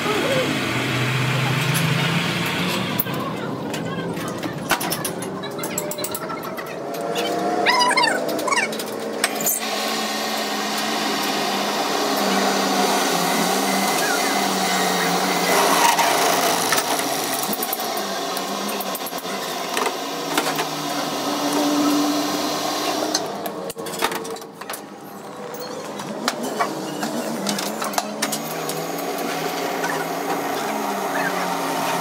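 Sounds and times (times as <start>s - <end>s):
lathe motor hum: 9.0s - 24.2s, 24.8s - 32.0s
drill cutting metal: 9.2s - 23.8s, 26.5s - 32.0s.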